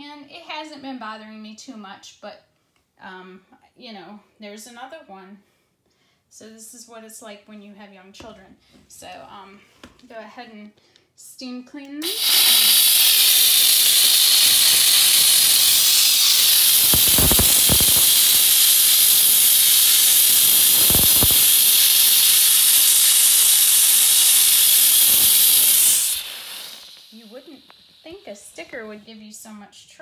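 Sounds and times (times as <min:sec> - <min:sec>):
steam cleaner hissing: 0:12.0 - 0:28.9
short crackles: 0:12.4 - 0:28.6.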